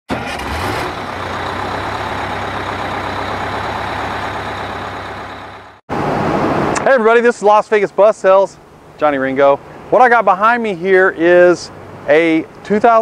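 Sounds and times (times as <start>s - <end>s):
engine running steadily: 0.1s - 6.9s.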